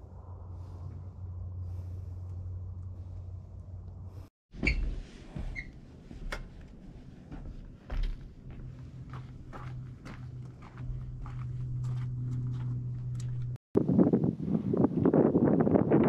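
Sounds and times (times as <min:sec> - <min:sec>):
steady low rumble: 0:00.0 - 0:04.3, 0:05.0 - 0:14.3
short squeaks: 0:04.6 - 0:05.8
footsteps on metal grating stairs: 0:04.6 - 0:13.6.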